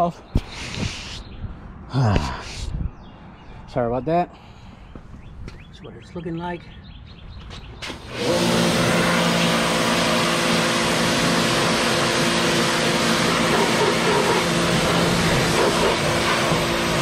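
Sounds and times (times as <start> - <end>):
pressure washer motor hum: 7.8 - 17.0.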